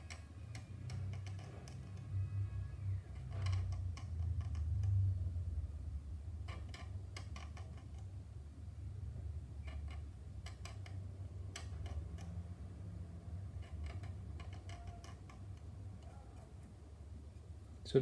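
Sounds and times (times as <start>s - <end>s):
scriber scraping plastic: 0.0s - 5.0s, 13.4s - 16.7s
steady low hum: 0.0s - 18.0s.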